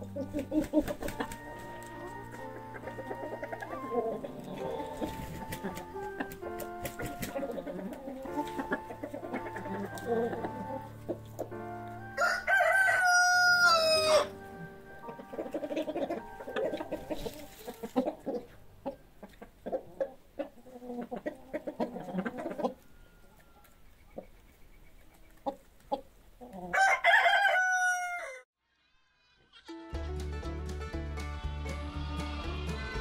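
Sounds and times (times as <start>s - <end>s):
chickens clucking: 0.0s - 28.0s
rooster crowing: 12.0s - 14.4s, 26.7s - 28.5s.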